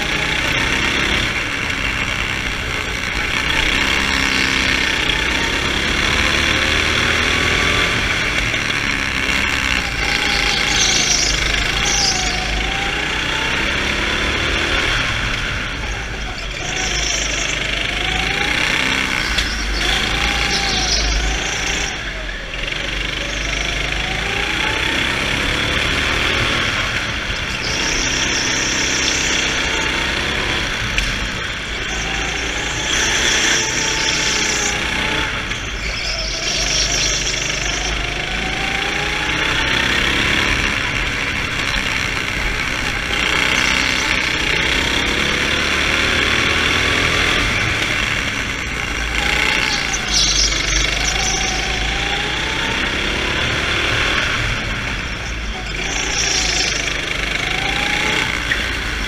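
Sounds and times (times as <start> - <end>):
go-kart engine at full throttle: 0.0 - 59.0.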